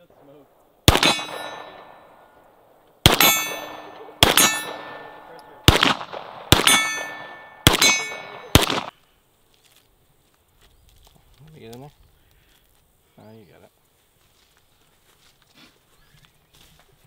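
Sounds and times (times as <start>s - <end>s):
gunshots: 0.0s - 2.3s, 3.0s - 9.0s
metallic clang of steel targets: 0.9s - 2.0s, 3.1s - 8.9s.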